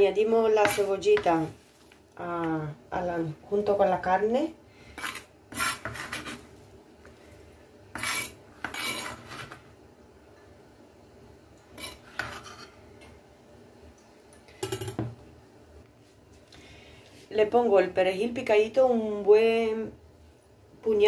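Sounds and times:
knife scraping cutting board: 5.0s - 6.5s, 7.9s - 9.6s, 11.8s - 12.8s.

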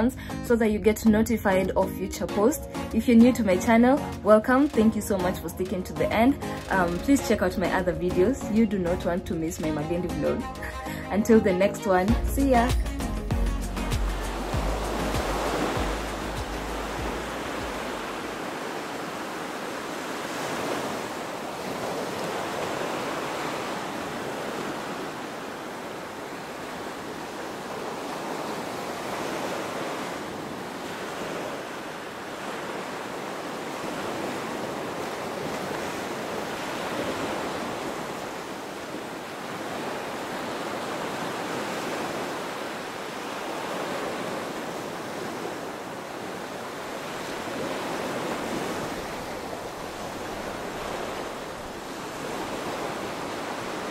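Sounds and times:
ocean surf on sandy beach: 13.7s - 53.9s.

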